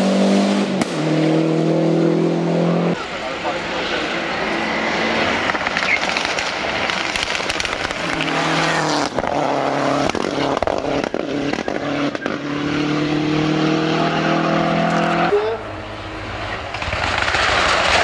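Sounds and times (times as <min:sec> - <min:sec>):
rally car engine at full throttle: 0:00.0 - 0:18.0
sharp exhaust pops: 0:05.4 - 0:08.4, 0:09.0 - 0:12.4, 0:16.6 - 0:18.0.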